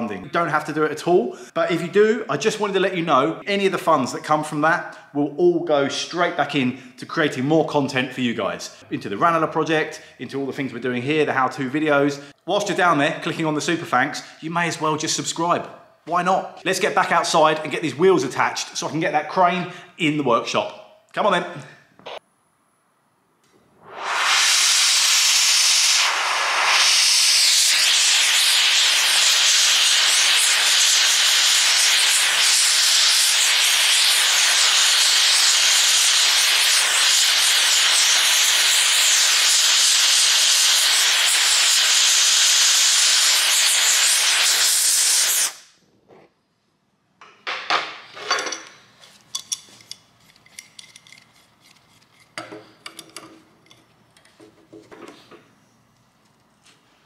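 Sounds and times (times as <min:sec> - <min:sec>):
gas torch flame hissing: 0:23.8 - 0:45.8
metallic clinks of hand tools: 0:49.3 - 0:53.9.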